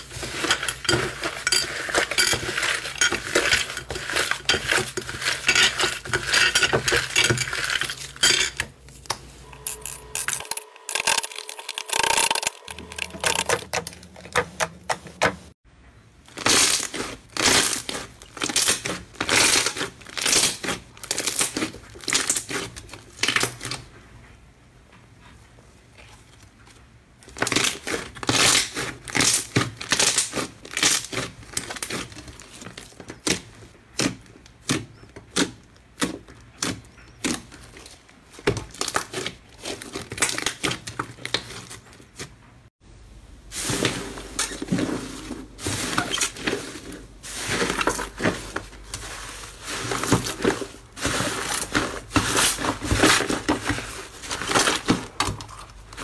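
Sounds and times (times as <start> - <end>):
hands squishing crackling slime: 27.2 - 42.4.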